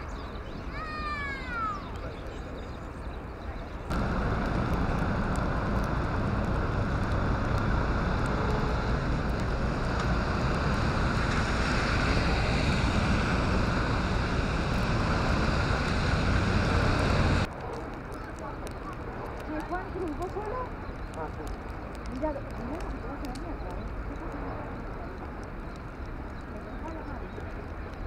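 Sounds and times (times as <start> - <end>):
wind buffeting microphone: 1.6 - 28.0
passing traffic: 3.9 - 28.0.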